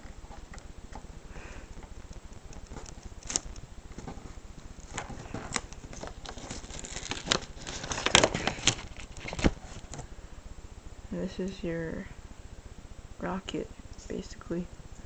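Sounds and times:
small paper crackles: 0:01.8 - 0:10.0
paper rustling and crinkling: 0:01.8 - 0:10.1.

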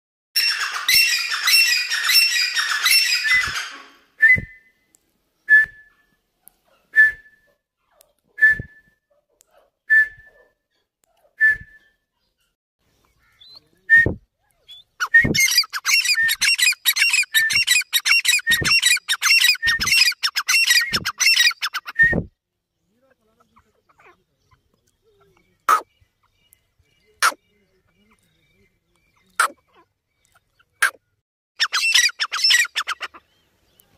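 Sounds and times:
francolins calling: 0:00.4 - 0:04.2, 0:12.9 - 0:13.9, 0:14.5 - 0:22.0, 0:22.7 - 0:33.9.

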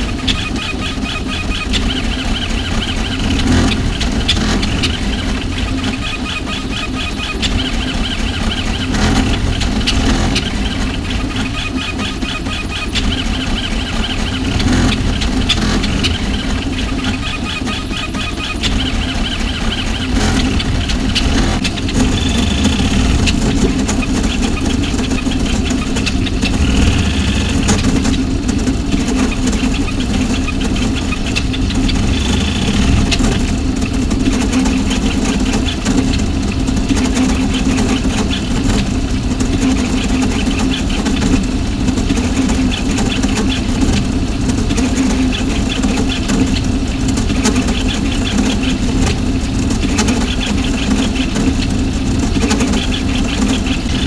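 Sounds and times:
high-pitched motor whines: 0:00.0 - 0:38.7
printer motors and fans hum: 0:00.0 - 0:54.0.

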